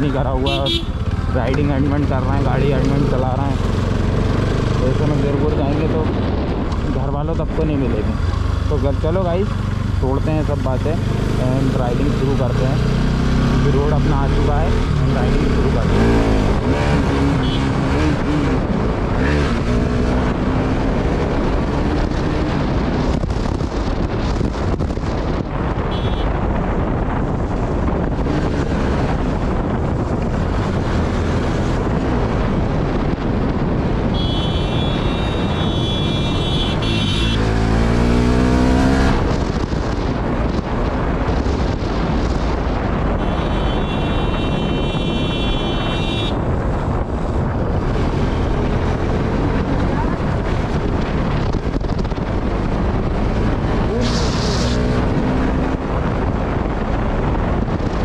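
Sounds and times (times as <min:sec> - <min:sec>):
motorcycle engine revving: 0:00.0 - 0:06.9, 0:10.7 - 0:24.0, 0:34.0 - 0:58.0
wind rushing over microphone: 0:00.0 - 0:58.0.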